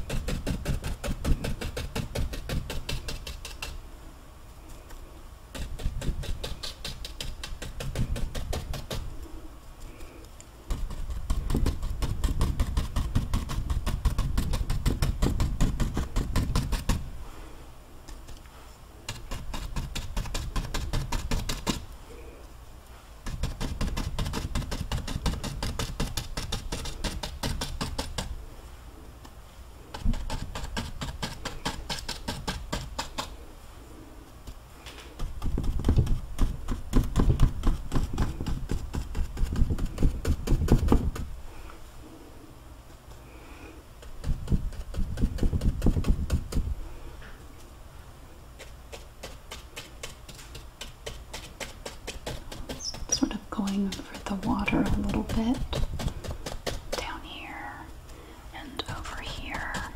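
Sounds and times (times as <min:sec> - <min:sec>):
paintbrush dabbing on canvas: 0:48.6 - 0:57.6.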